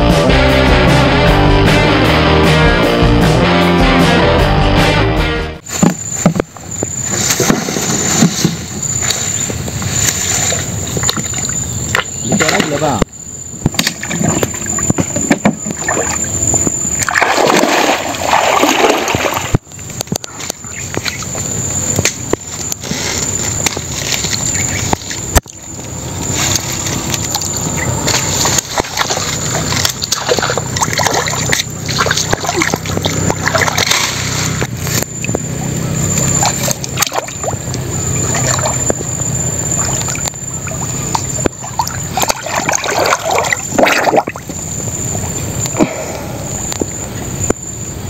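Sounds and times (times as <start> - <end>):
water splashing around wader: 13.7 - 19.7, 24.0 - 45.4
water streaming off: 17.1 - 19.6.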